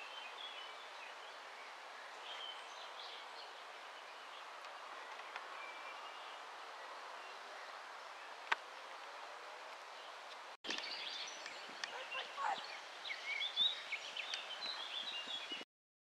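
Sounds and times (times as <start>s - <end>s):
outdoor background hiss: 0.0s - 15.6s
small birds chirping: 0.0s - 15.6s.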